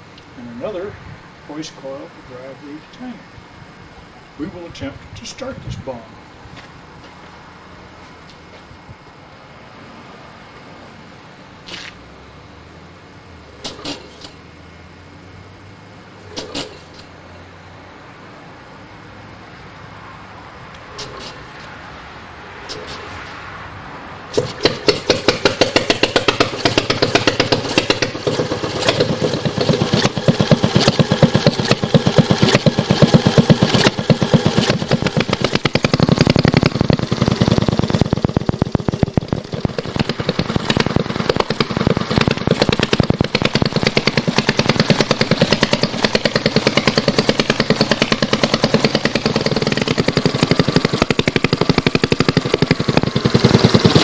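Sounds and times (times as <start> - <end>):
flywheel engine running: 24.4 - 54.0.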